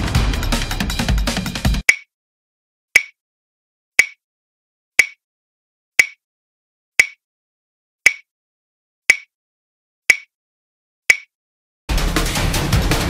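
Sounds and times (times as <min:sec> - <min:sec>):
timer ticks: 0:01.8 - 0:02.1, 0:03.0 - 0:03.2, 0:04.0 - 0:04.2, 0:05.0 - 0:05.2, 0:06.0 - 0:06.2, 0:07.0 - 0:07.2, 0:08.1 - 0:08.3, 0:09.1 - 0:09.3, 0:10.1 - 0:10.3, 0:11.1 - 0:11.3.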